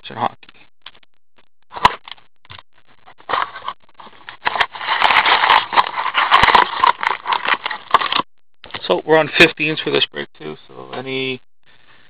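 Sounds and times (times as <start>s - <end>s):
wrapped packs crinkling: 3.3s - 8.3s
cardboard box being opened: 4.4s - 8.2s.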